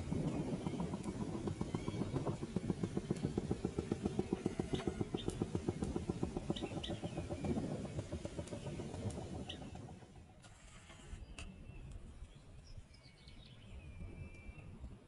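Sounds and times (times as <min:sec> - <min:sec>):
small engine chugging: 0:00.0 - 0:11.3.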